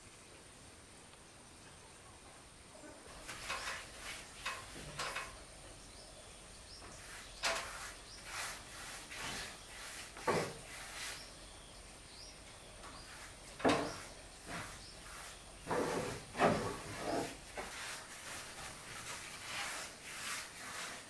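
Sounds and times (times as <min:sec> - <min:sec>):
paintbrush swishing on wood: 0:03.2 - 0:05.3, 0:06.7 - 0:11.5, 0:12.9 - 0:21.0.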